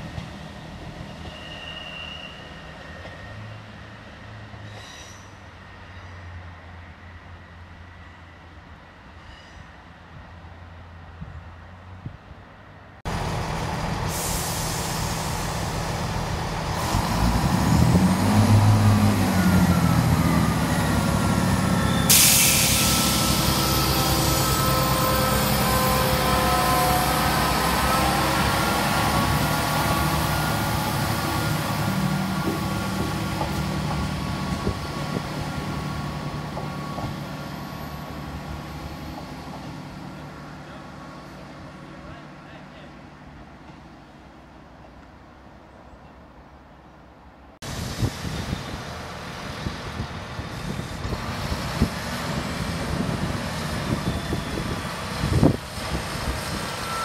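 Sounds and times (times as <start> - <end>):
train diesel engines running: 0.0 - 57.0
sudden hiss: 22.0 - 23.8.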